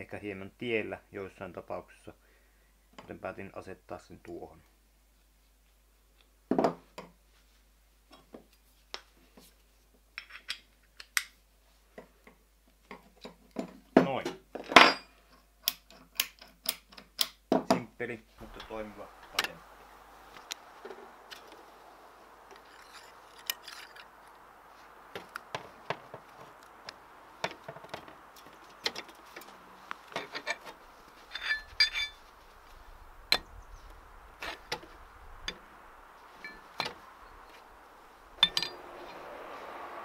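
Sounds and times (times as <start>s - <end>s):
ringing metal clinks: 31.3s - 32.2s, 38.4s - 38.8s.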